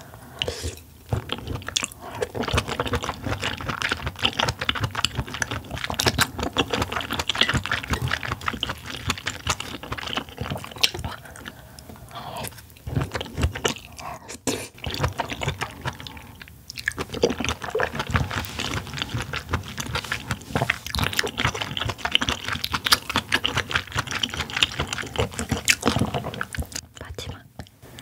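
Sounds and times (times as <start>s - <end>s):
close-miked chewing: 0.3s - 28.0s.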